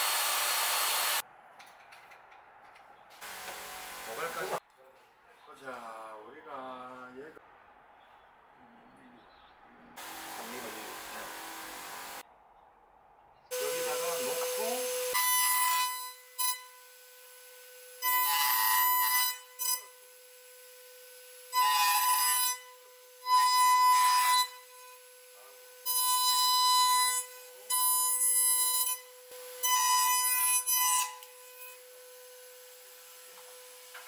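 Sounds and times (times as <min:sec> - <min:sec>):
router bit cutting wood: 0:00.0 - 0:01.2, 0:10.0 - 0:12.2, 0:13.5 - 0:27.9
router whining: 0:00.0 - 0:01.2, 0:13.5 - 0:20.0.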